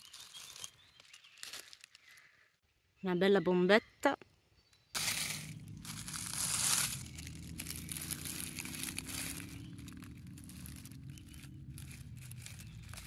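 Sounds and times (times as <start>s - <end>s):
dry leaves rustling and crackling: 0.0s - 2.1s, 5.0s - 13.0s.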